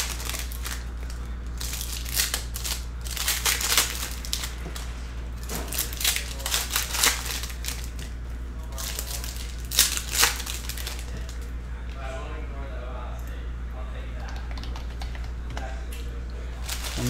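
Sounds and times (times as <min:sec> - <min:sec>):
packs tearing open: 0:00.0 - 0:04.5, 0:05.7 - 0:07.9, 0:16.6 - 0:17.0
foil wrappers crinkling: 0:00.0 - 0:08.1, 0:08.7 - 0:11.5, 0:16.6 - 0:17.0.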